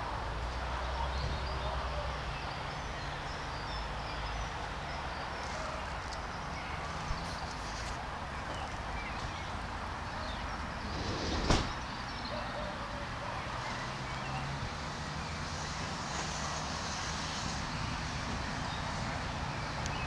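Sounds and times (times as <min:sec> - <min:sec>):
road traffic rumble: 0:00.0 - 0:20.0
sharp knock: 0:11.3 - 0:11.8.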